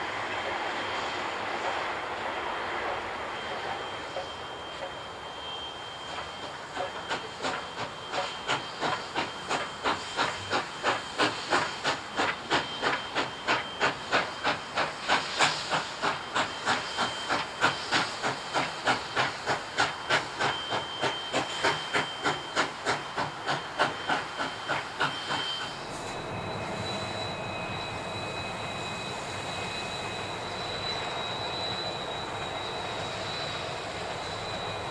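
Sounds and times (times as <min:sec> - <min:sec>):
steam locomotive chuffing: 0:00.0 - 0:34.9.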